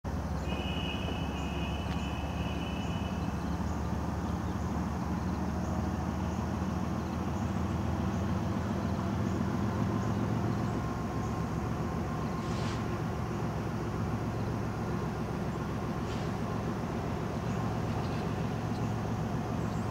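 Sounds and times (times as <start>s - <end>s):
locomotive engine rumble: 0.1s - 19.9s
faint high chirps: 0.3s - 4.4s
high two-note whine: 0.4s - 3.5s.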